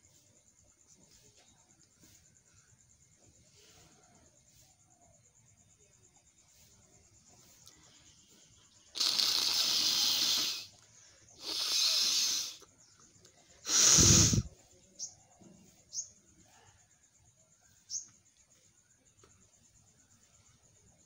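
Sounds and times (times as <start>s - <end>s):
person sniffing: 8.9s - 12.7s, 13.6s - 14.5s
person blowing nose: 9.0s - 10.8s, 11.4s - 12.6s, 13.7s - 14.5s.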